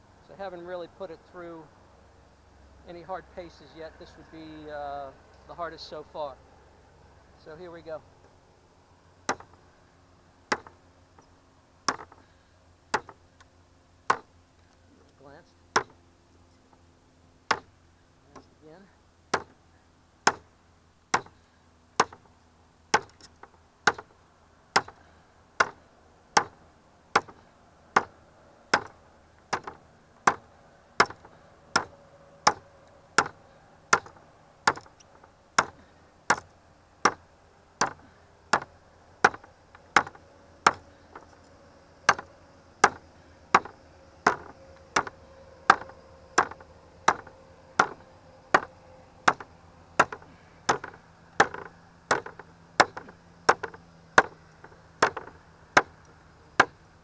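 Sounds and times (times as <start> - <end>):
blade chopping into wood: 9.3 - 9.6, 10.5 - 10.8, 11.9 - 12.3, 12.9 - 13.2, 14.1 - 14.3, 15.7 - 16.0, 17.5 - 17.7, 19.3 - 19.6, 20.2 - 20.5, 21.1 - 21.4, 22.0 - 22.3, 22.9 - 24.1, 24.7 - 25.8, 26.4 - 27.4, 28.0 - 32.6, 33.2 - 35.0, 35.6 - 37.2, 37.8 - 41.4, 42.1 - 54.4, 55.0 - 56.0, 56.6 - 56.8.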